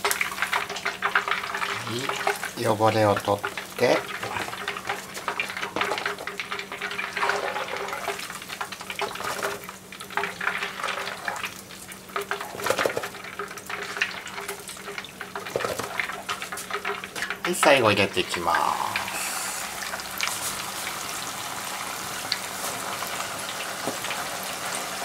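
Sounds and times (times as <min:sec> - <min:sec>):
frying oil crackling and bubbling: 0:00.0 - 0:25.0
mesh skimmer drawn through oil: 0:04.0 - 0:08.4.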